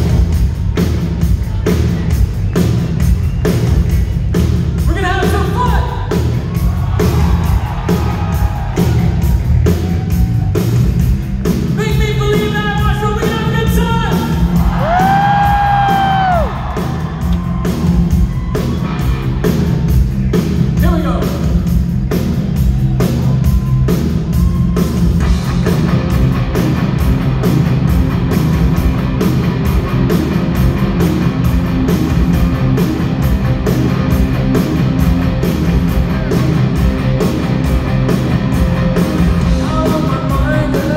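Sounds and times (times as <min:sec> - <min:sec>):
live rock band: 0:00.0 - 0:40.9
steady drum beat: 0:00.0 - 0:40.9
man singing: 0:39.6 - 0:40.9.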